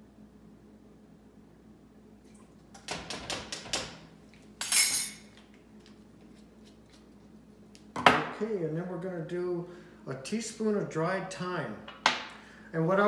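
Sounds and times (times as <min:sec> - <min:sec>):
kitchen utensils clinking: 0:04.6 - 0:05.4.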